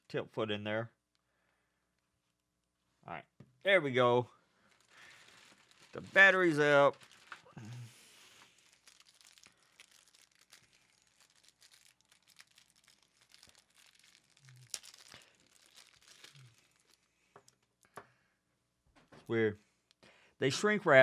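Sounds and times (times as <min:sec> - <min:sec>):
plastic shrink wrap crinkling: 0:04.6 - 0:17.9.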